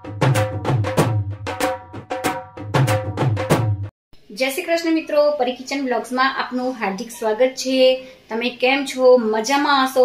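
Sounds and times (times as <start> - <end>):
brisk drum beat: 0.0 - 3.9.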